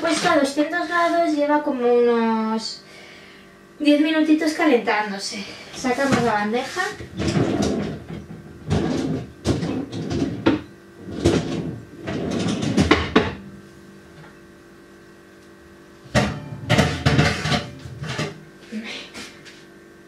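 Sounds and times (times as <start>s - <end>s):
oven door opening: 7.0s - 13.4s
metal baking tray clattering: 16.1s - 18.4s.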